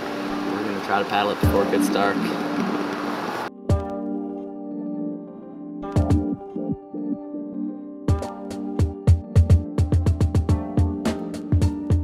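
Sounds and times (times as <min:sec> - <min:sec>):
held synth chord: 0:00.0 - 0:08.1
fast drum beat with deep kicks: 0:08.8 - 0:12.0.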